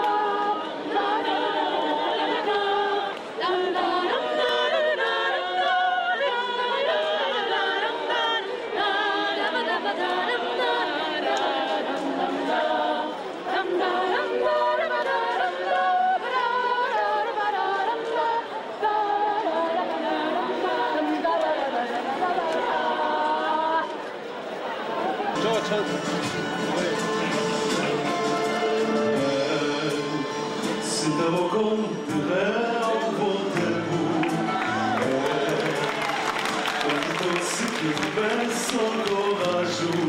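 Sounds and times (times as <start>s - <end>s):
women's choir singing a cappella: 0.0s - 25.6s, 26.4s - 40.0s.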